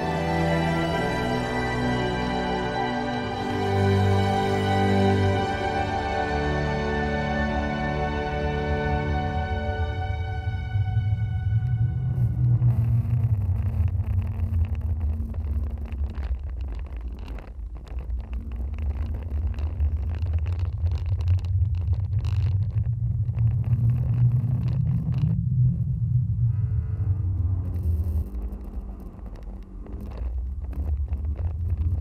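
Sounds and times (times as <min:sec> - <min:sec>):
water noise: 0:07.6 - 0:26.5
wind on microphone: 0:09.8 - 0:32.0.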